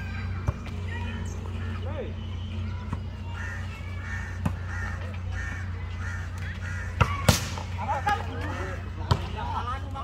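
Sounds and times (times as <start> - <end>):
birds calling: 0.0 - 10.0.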